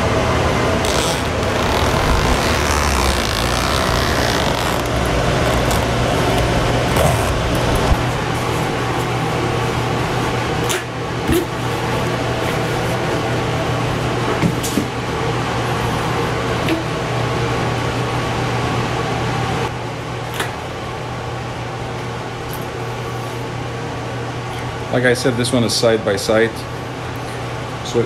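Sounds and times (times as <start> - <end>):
mechanical hum with fan hiss: 0.0 - 28.0
cover rustling: 0.8 - 9.2.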